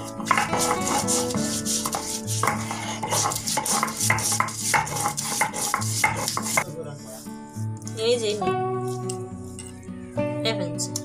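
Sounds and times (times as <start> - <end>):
stone roller scraping on stone slab: 0.0 - 6.6.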